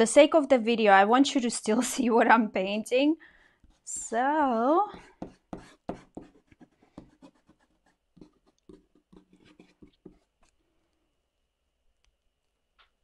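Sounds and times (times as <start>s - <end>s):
eraser rubbing on paper: 4.9s - 10.5s.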